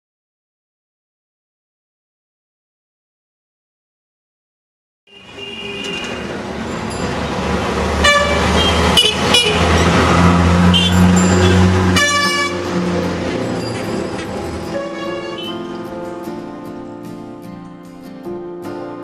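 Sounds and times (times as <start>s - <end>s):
vehicle horns honking: 5.1s - 6.4s, 8.0s - 12.9s, 13.6s - 15.8s
street traffic engines running: 5.1s - 17.7s.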